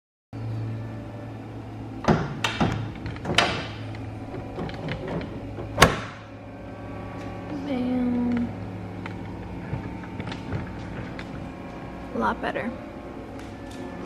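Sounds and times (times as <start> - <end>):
steady low hum: 0.4 - 14.0
car hood knocks and clicks: 2.0 - 6.3.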